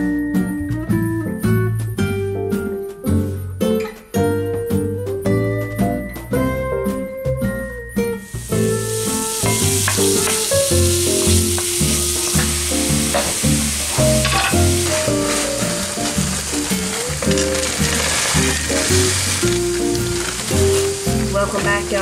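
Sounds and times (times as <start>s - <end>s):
background music: 0.0s - 22.0s
sausage sizzling in skillet: 8.1s - 22.0s
wooden spatula scraping: 8.3s - 22.0s.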